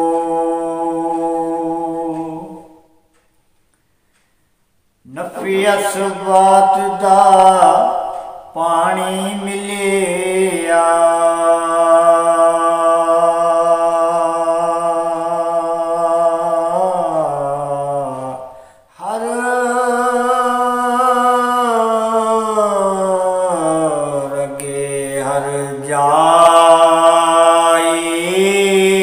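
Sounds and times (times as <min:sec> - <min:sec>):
man singing unaccompanied: 0:00.0 - 0:03.1, 0:05.0 - 0:29.0.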